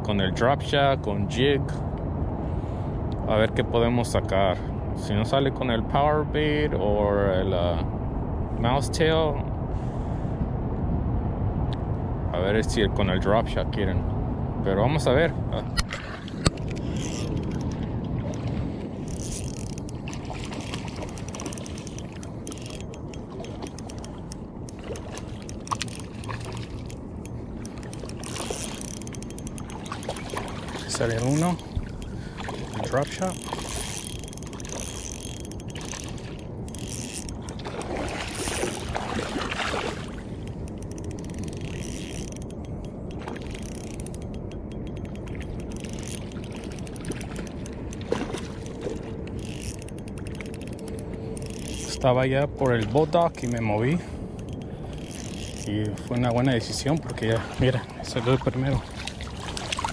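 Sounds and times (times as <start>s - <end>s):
water rumble: 0.0s - 59.9s
wind noise: 0.0s - 59.9s
fishing reel ticking: 16.4s - 18.4s, 19.0s - 38.9s, 40.4s - 58.7s.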